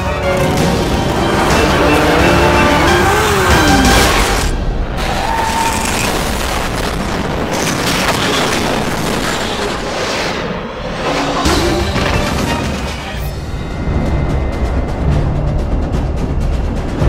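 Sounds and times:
soundtrack music: 0:00.0 - 0:07.0, 0:10.8 - 0:17.0
dense rumble: 0:13.3 - 0:17.0.

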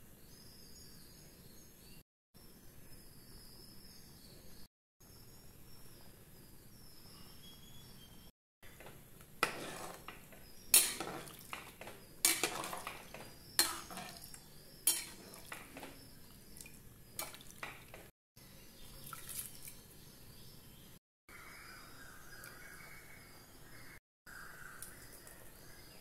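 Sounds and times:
ladle clinking against metal pot: 0:10.8 - 0:14.3, 0:14.9 - 0:16.0.

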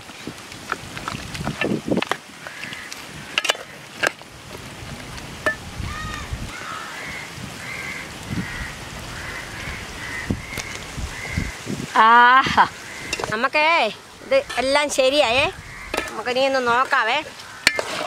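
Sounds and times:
bird harsh repeated calls: 0:05.8 - 0:11.7, 0:12.6 - 0:18.0
metal ladle knocking on pot: 0:15.9 - 0:16.3.

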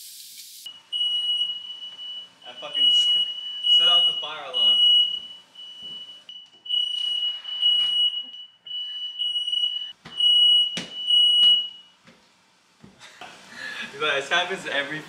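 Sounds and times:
smoke alarm high tone: 0:00.6 - 0:11.9.

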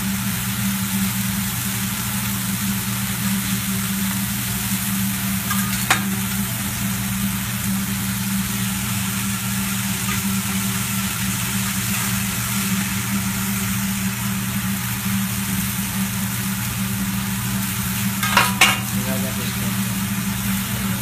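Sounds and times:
food sizzling on griddle: 0:00.0 - 0:21.0.

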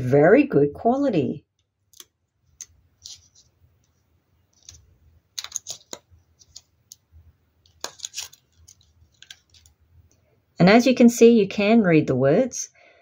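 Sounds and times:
fingers clicking on small book: 0:01.9 - 0:09.8.

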